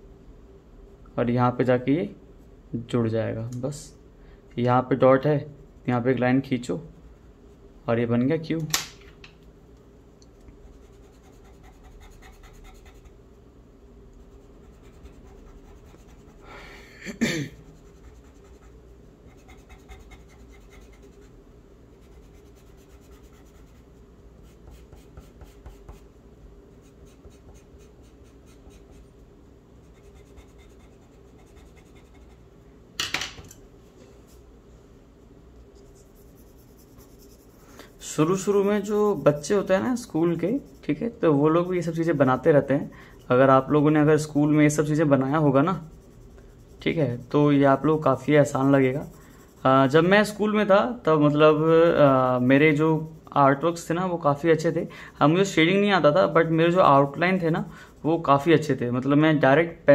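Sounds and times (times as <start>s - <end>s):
steady low hum: 0.0s - 59.9s
pencil scratching on paper: 10.6s - 13.2s, 14.2s - 16.4s, 17.6s - 26.1s, 26.7s - 29.2s, 29.8s - 32.4s, 35.8s - 50.4s, 51.3s - 53.9s, 55.2s - 58.7s.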